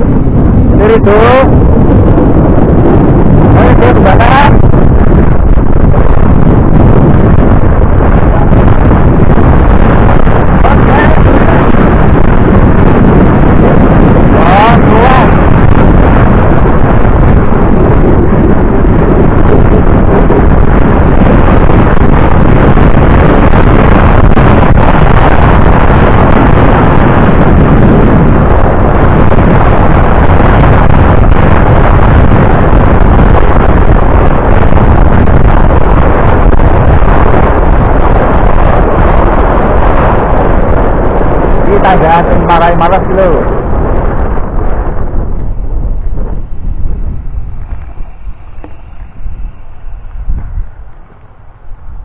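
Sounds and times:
wind buffeting microphone: 0:00.0 - 0:52.0.

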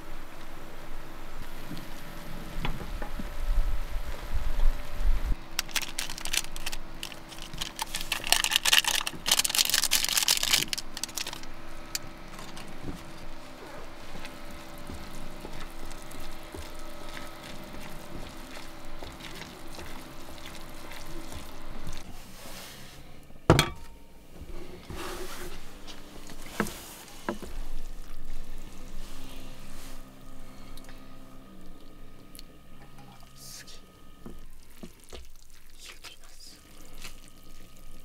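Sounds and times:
steady hum: 0:00.0 - 0:34.9
wet noodle sounds: 0:12.5 - 0:22.1, 0:34.4 - 0:38.0.

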